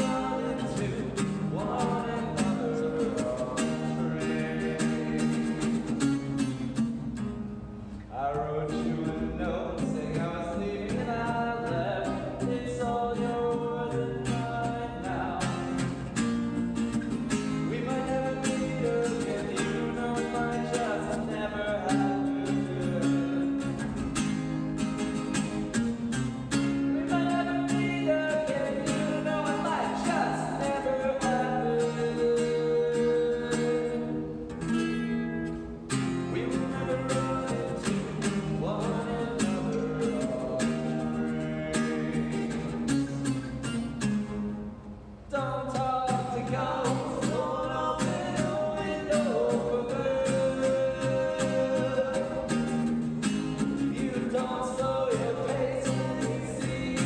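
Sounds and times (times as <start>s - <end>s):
person singing: 0.0s - 5.9s, 45.3s - 52.6s
acoustic guitar strumming: 0.0s - 57.0s.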